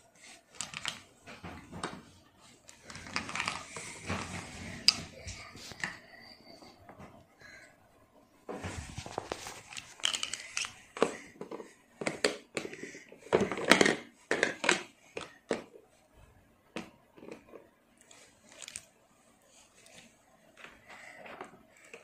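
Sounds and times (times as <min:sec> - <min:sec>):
plastic toy pieces clattering: 0:09.3 - 0:12.7.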